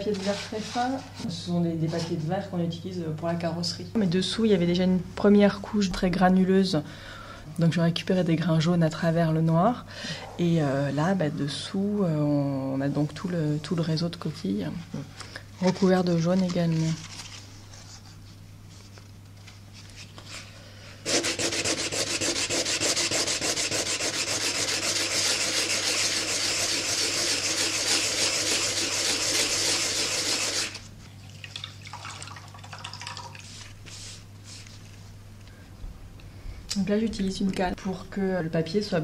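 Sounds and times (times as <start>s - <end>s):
sandpaper rubbing: 0.0s - 1.1s, 21.0s - 30.9s, 33.5s - 34.8s.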